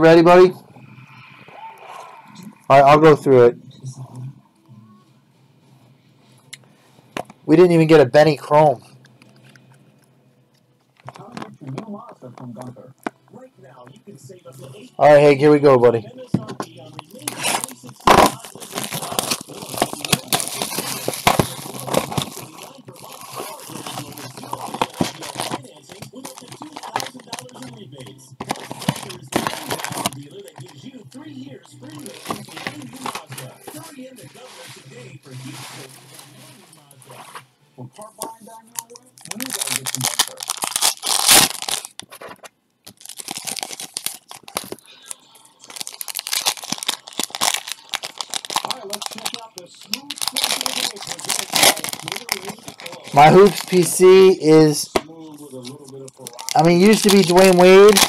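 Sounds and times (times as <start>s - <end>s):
cards rustling: 14.6s - 58.0s
plastic wrapping crinkling and tearing: 16.7s - 37.4s, 38.0s - 58.0s.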